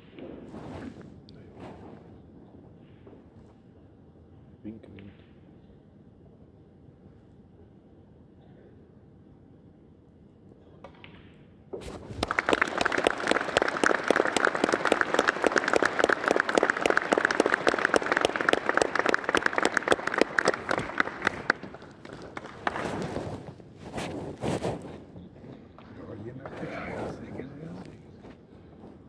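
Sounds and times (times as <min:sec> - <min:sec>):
audience applauding: 0:11.8 - 0:23.1.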